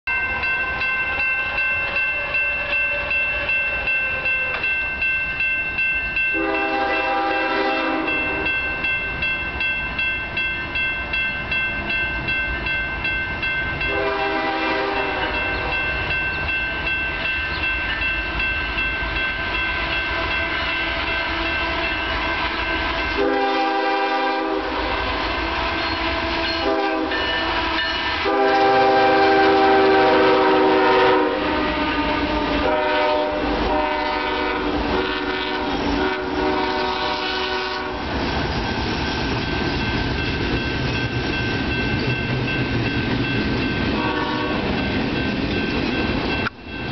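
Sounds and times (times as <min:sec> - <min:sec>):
crossing bell ringing: 0:00.1 - 0:38.2, 0:39.3 - 0:46.9
locomotive air horn: 0:00.6 - 0:04.6, 0:06.4 - 0:08.5, 0:13.9 - 0:15.9, 0:19.8 - 0:38.1, 0:44.0 - 0:44.7.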